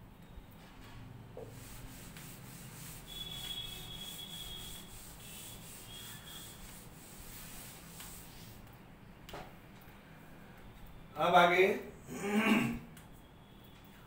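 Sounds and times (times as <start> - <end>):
duster wiping chalkboard: 1.4 - 8.6
thin high squeak: 3.0 - 6.6.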